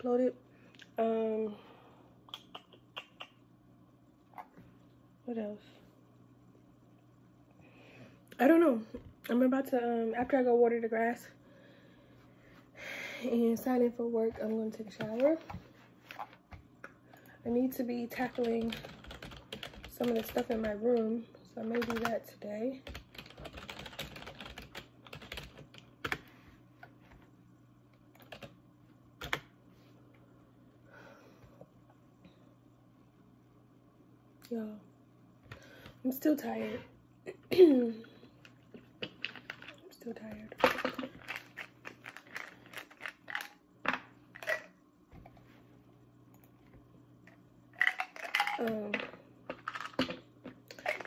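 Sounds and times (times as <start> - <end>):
faint low hum: 0.0 - 51.0
computer keyboard typing: 18.1 - 22.2, 22.8 - 26.2, 28.2 - 28.6, 29.2 - 29.5
plastic bottles clicking and crinkling: 40.5 - 44.7, 47.8 - 51.0.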